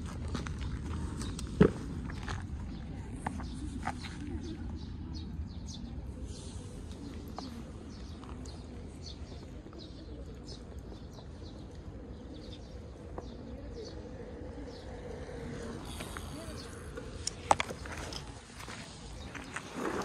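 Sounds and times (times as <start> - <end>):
small birds chirping: 0.9 - 20.0.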